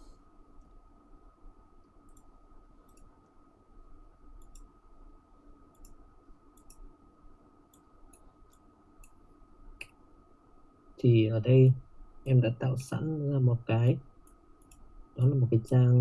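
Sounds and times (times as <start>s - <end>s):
thin steady background tone: 0.0s - 16.0s
computer mouse clicks: 1.8s - 3.3s, 4.4s - 4.7s, 5.7s - 6.9s, 7.7s - 9.2s, 14.2s - 15.9s.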